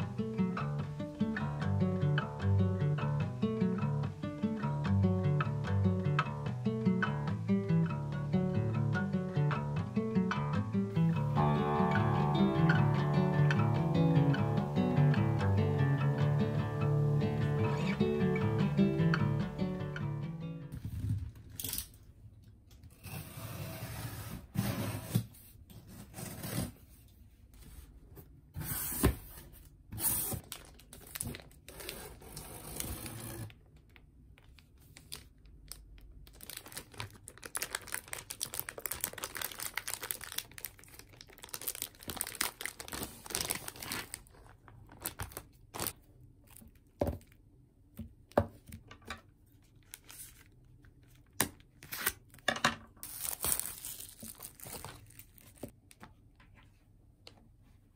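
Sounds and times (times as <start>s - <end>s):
plastic packaging rustling: 30.1s - 47.4s, 49.6s - 56.0s.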